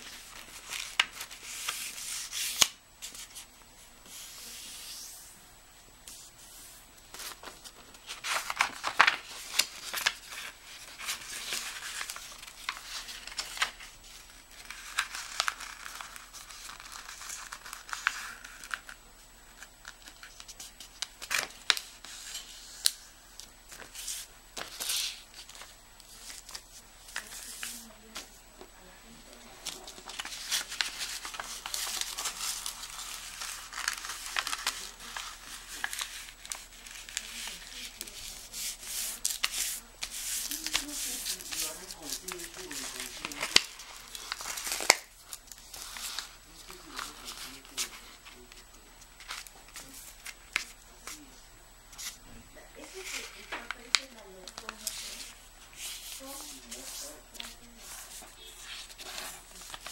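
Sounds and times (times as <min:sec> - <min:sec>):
paper rustling and scraping: 0:00.0 - 0:05.3, 0:06.1 - 0:19.0, 0:29.6 - 0:48.4, 0:52.8 - 0:59.9.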